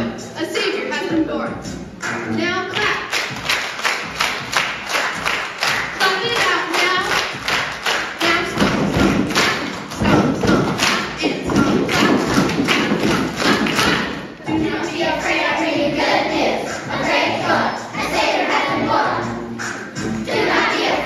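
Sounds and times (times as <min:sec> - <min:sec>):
steady thumping beat: 0:00.0 - 0:21.0
children's chorus singing: 0:08.2 - 0:19.4, 0:20.2 - 0:21.0.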